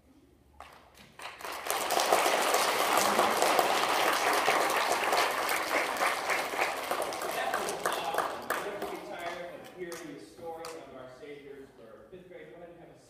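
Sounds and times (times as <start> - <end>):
audience applauding: 0.6 - 10.0.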